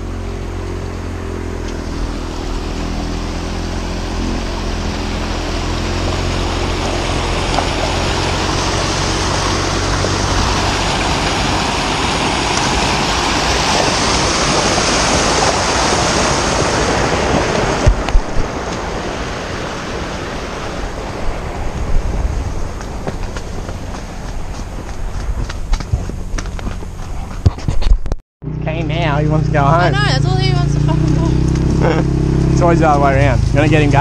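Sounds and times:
creek water rushing over rocks: 0.0s - 26.8s.

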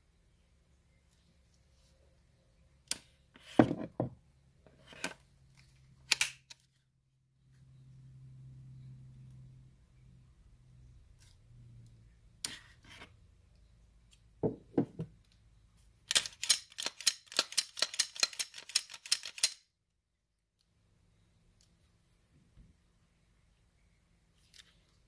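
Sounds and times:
pistol handling clicks: 6.1s - 6.6s, 16.1s - 19.6s.

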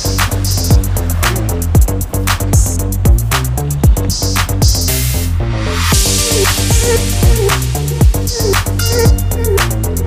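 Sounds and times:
bass line: 0.0s - 10.0s
kick drum beat: 0.7s - 1.0s, 1.7s - 4.9s.

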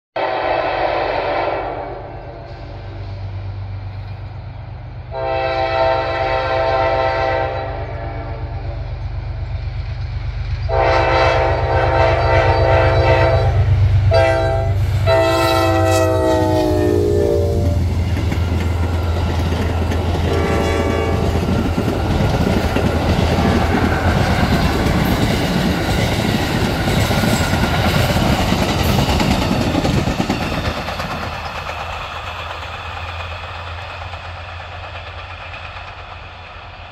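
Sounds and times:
locomotive horn blasts: 0.2s - 2.5s, 5.1s - 8.8s, 10.7s - 17.9s, 20.2s - 21.5s
train wheels clattering on rails: 17.6s - 36.9s.

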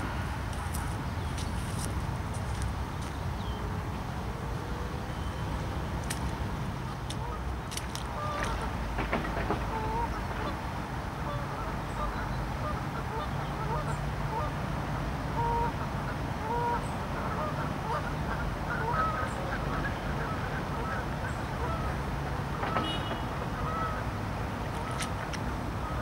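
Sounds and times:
waterfowl honking: 7.1s - 7.4s, 8.2s - 10.6s, 11.2s - 14.6s, 15.3s - 22.0s, 22.6s - 26.0s.

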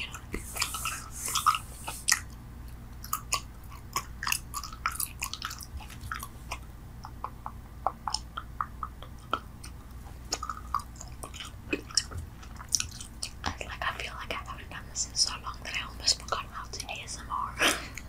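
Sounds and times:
person chewing gum: 0.1s - 13.8s.

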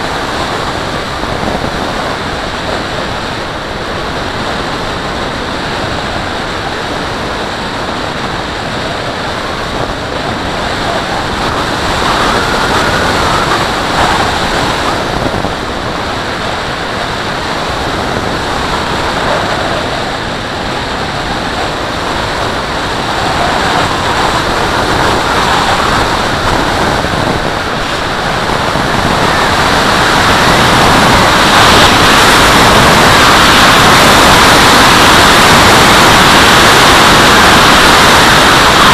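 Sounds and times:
wind rushing over microphone: 0.0s - 38.9s.

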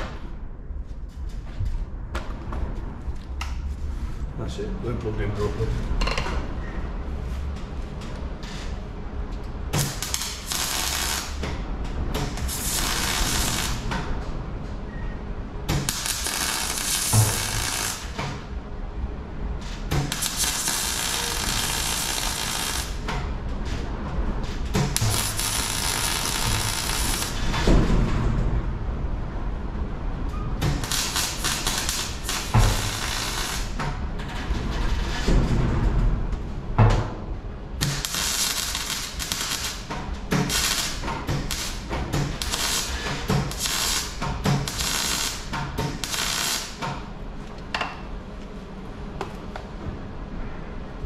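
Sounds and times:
welder arc noise: 9.8s - 11.4s, 12.2s - 13.9s, 15.7s - 18.4s, 20.0s - 23.0s, 24.8s - 27.5s, 30.6s - 33.8s, 37.8s - 46.8s.

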